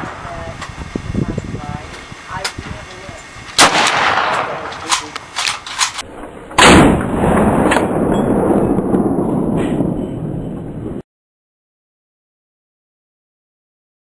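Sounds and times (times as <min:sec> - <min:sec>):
low rumble: 0:00.0 - 0:11.0
loud rifle shots: 0:03.6 - 0:08.2.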